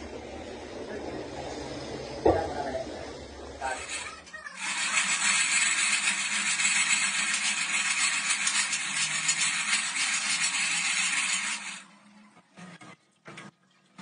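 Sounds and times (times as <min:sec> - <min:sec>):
hydraulic pump running: 0:03.6 - 0:11.9.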